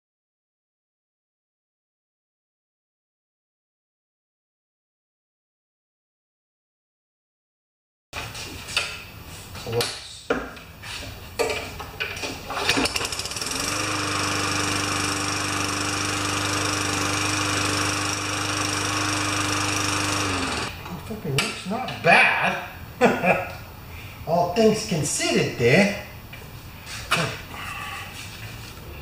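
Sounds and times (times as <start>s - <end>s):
lawn mower engine running: 12.6s - 20.8s.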